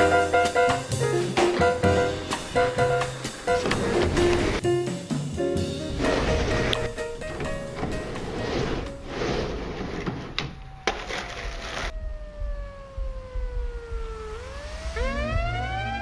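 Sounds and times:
skateboard wheels rolling: 0.0s - 4.6s, 5.6s - 11.9s
rising swooping tones: 11.9s - 16.0s.

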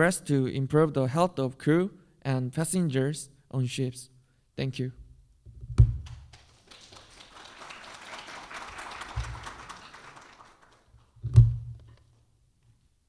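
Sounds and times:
audience applauding: 6.3s - 11.1s.

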